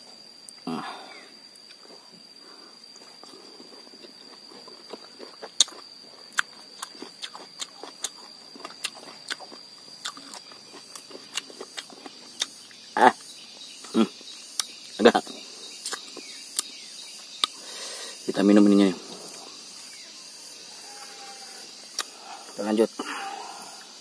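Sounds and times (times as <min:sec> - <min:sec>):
high insect buzz: 0:00.0 - 0:24.0
person chewing crisply: 0:03.0 - 0:12.6.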